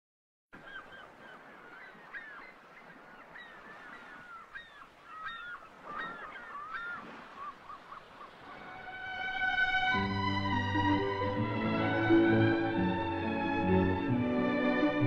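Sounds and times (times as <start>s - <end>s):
flock of birds calling: 0.6s - 10.0s.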